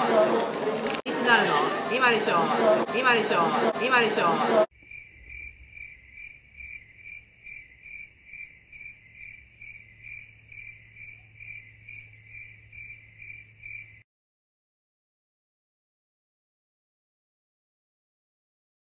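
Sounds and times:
cricket chirping: 4.8s - 14.0s.

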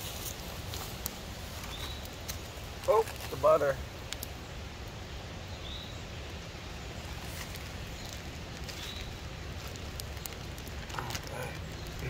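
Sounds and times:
low rumble of wind: 0.0s - 12.0s
faint clicks: 4.0s - 4.4s.

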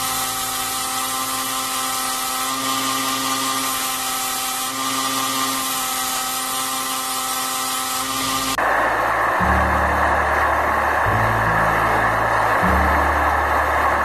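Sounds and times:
belt grinder grinding steel blade: 0.0s - 8.6s.

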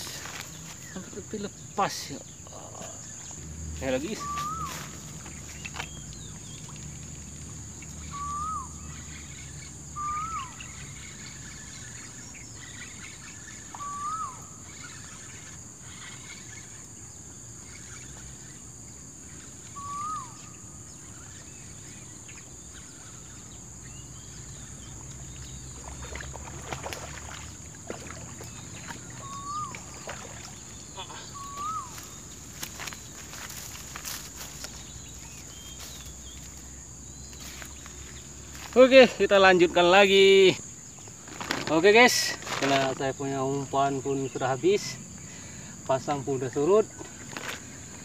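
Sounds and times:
bird calling: 0.0s - 48.0s.

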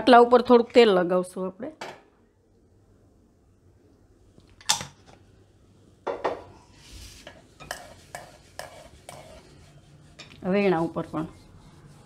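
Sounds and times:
hand rubbing oil on board: 7.8s - 12.0s.

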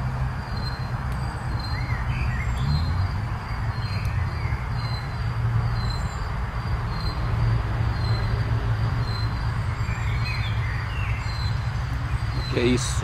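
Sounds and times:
bird calls: 0.5s - 6.3s, 9.0s - 13.0s.

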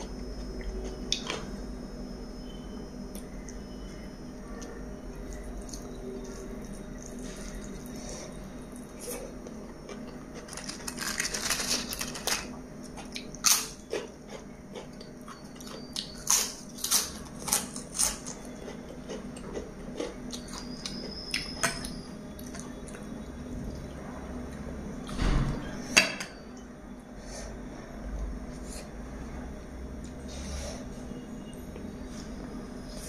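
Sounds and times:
crunching while chewing: 4.6s - 23.9s.

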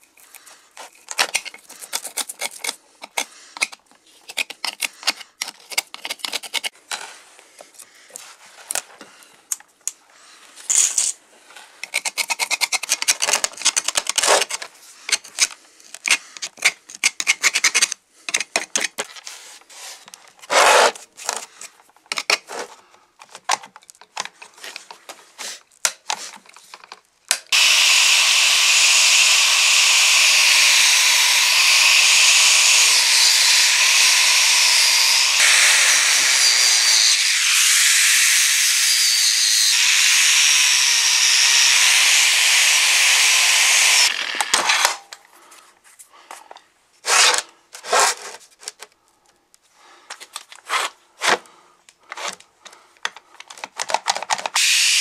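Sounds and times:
angle grinder wire brushing metal: 27.5s - 44.8s.

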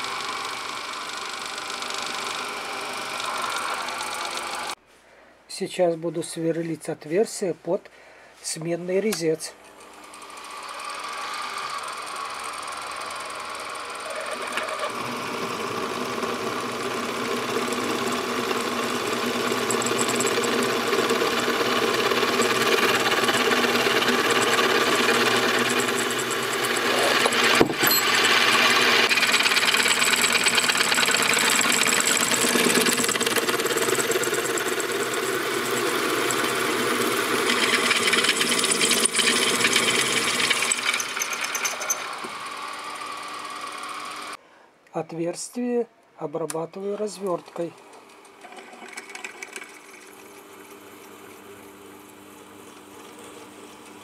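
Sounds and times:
drill cutting into steel: 0.0s - 4.8s, 9.8s - 44.4s.

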